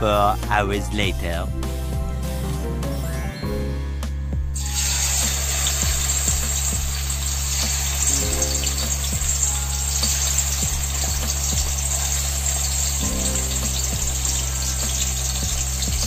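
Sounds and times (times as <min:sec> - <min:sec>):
background music: 0:00.0 - 0:16.0
chicken sizzling in hot oil: 0:04.6 - 0:16.0.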